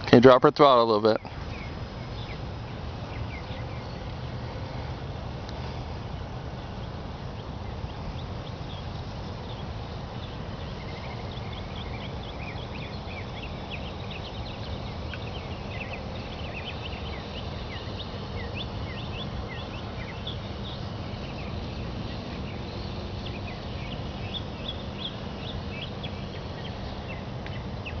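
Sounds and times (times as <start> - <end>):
small birds chirping: 0.0 - 28.0.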